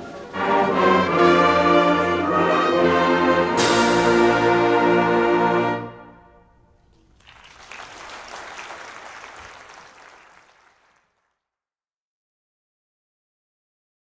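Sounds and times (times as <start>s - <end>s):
audience applause: 0.0s - 2.3s, 6.9s - 11.3s
concert band chord: 0.4s - 6.9s.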